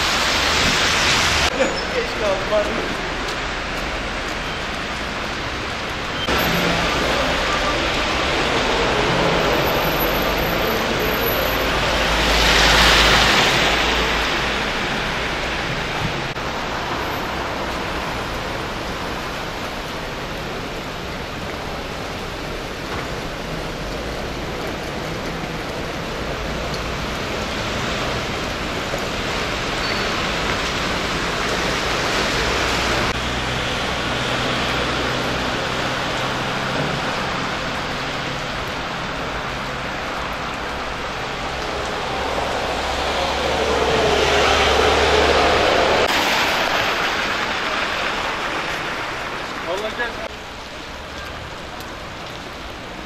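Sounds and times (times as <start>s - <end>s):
street ambience hiss: 0.0s - 53.0s
tyres on slushy wet road: 0.0s - 53.0s
vehicle passing: 40.7s - 50.2s.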